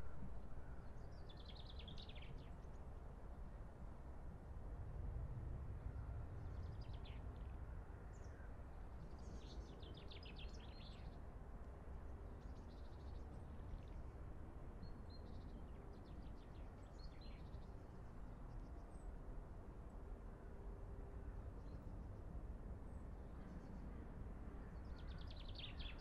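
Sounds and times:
low outdoor rumble: 0.0s - 1.5s.

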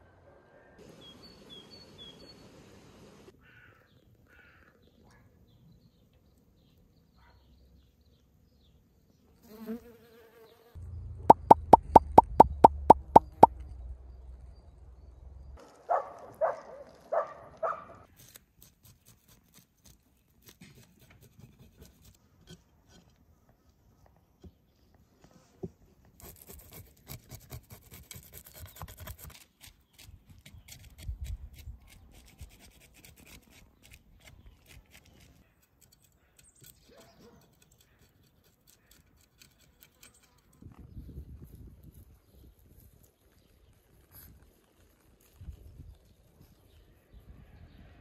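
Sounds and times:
rapid sharp clicks: 11.3s - 13.5s.

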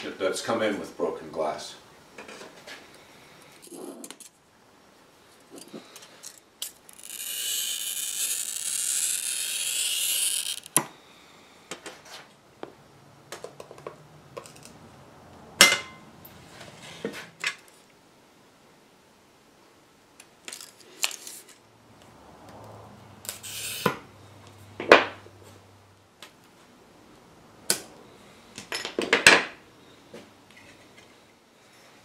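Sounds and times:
glass cutter scoring glass: 6.6s - 10.9s, 23.2s - 24.0s.

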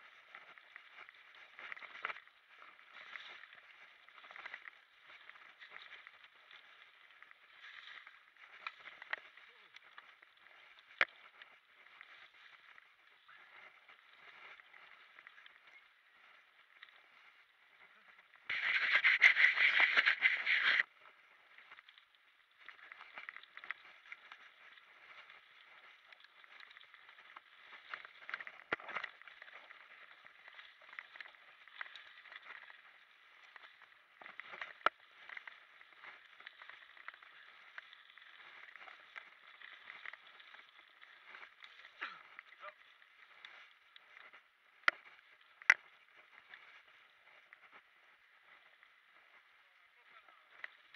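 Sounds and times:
bike tyre noise: 0.0s - 21.0s.

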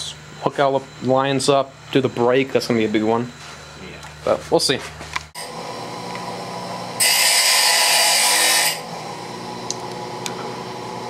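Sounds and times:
angle grinder running: 5.4s - 11.0s.

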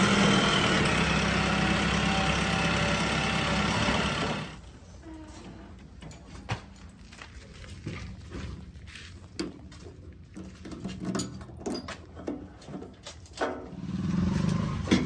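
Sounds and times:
metal clicks and knocks: 10.3s - 13.7s.

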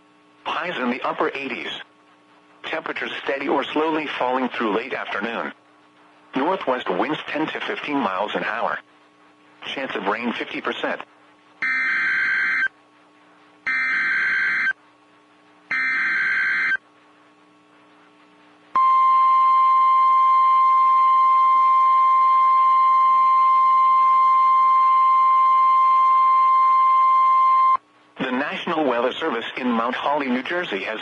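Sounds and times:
high-pitched warning alarm tone: 11.6s - 12.7s, 13.7s - 14.8s, 15.7s - 16.8s
screechy digital data bursts: 11.6s - 12.7s, 13.7s - 14.8s, 15.7s - 16.8s.

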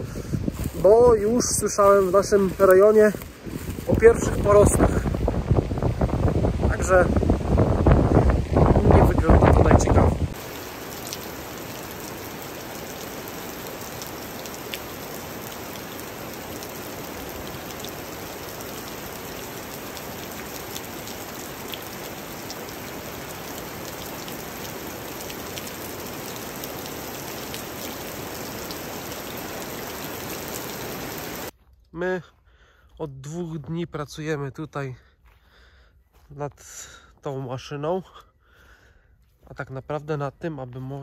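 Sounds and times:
steady rain falling: 0.6s - 31.5s.

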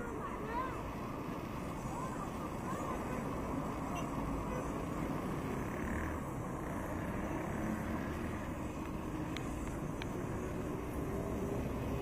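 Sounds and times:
passing cars rushing: 0.0s - 12.0s.

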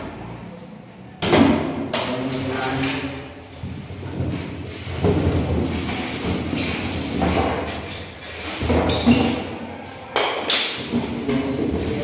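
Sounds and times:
knocks and rustles: 1.3s - 9.5s.

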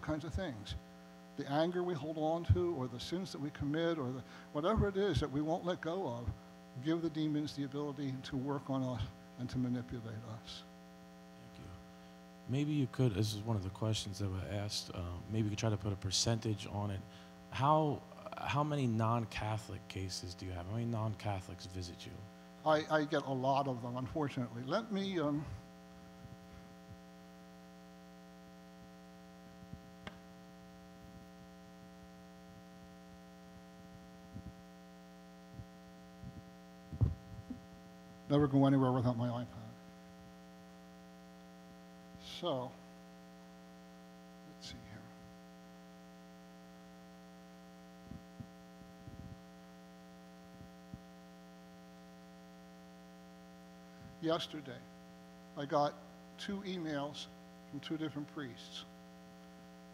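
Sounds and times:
low electrical hum: 0.0s - 59.9s
soft low thumps: 33.9s - 34.6s, 35.5s - 37.8s.

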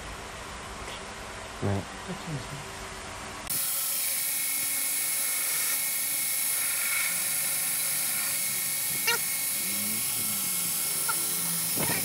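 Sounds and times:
belt grinder grinding steel: 3.5s - 12.0s.

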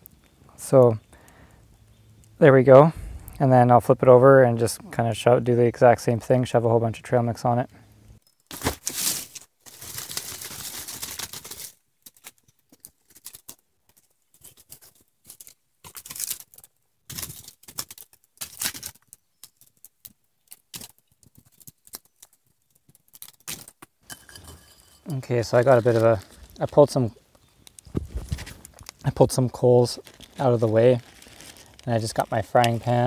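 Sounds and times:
campfire crackling: 0.0s - 4.8s, 14.9s - 33.0s.

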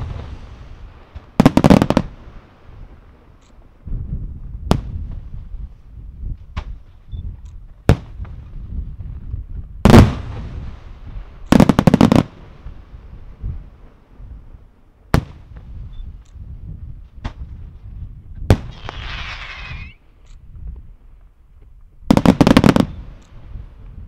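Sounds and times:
firework shells bursting: 18.5s - 20.0s.

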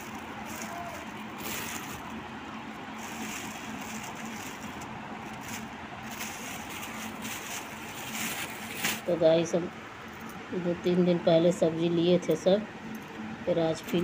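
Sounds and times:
plastic bags rustling: 0.0s - 9.2s.

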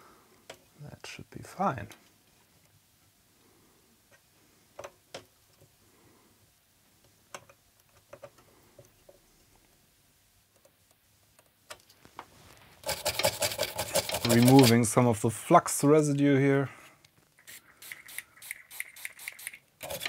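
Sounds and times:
faint clicks and taps: 7.0s - 9.8s, 10.5s - 12.3s
brush scrubbing circuit board: 12.8s - 14.9s, 17.4s - 20.0s.

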